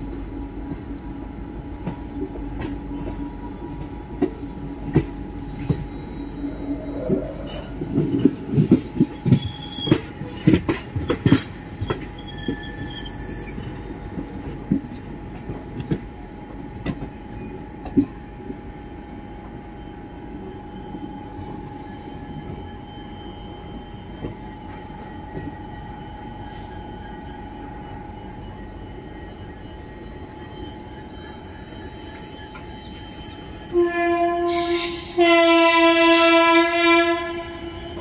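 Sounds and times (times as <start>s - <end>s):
train rumble: 0.0s - 38.0s
train wheels squealing: 2.5s - 14.4s, 15.0s - 15.7s, 16.9s - 33.8s.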